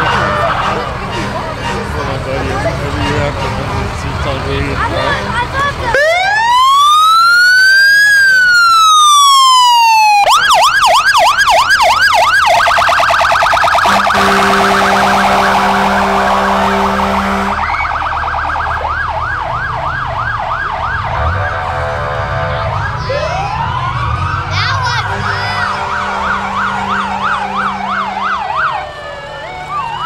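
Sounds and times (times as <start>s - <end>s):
emergency vehicle siren: 5.6s - 30.0s
low horn tone: 13.8s - 17.8s, 21.0s - 23.3s, 25.0s - 28.7s.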